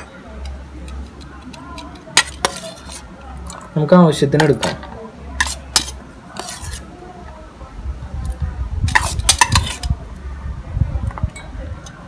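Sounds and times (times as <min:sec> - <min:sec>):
spoon scraping and clinking on pan: 0:00.4 - 0:03.6, 0:04.4 - 0:06.9, 0:08.9 - 0:09.9.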